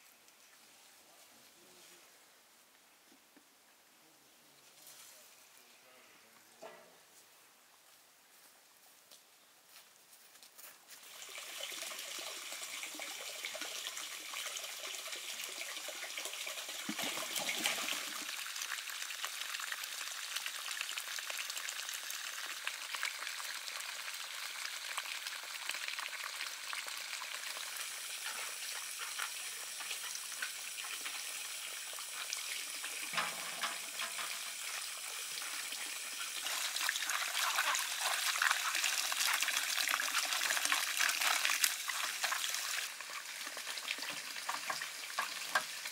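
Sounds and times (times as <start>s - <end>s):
hose water splashing into basin: 11.0s - 45.9s.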